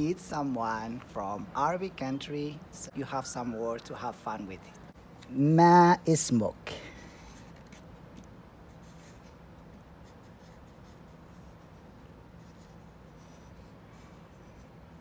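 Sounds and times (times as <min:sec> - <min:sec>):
faint low hum: 0:06.3 - 0:15.0
marker scratching on paper: 0:08.6 - 0:15.0.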